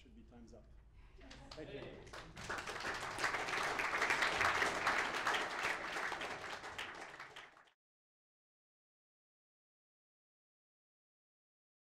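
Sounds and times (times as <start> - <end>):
audience applauding: 1.4 - 7.8.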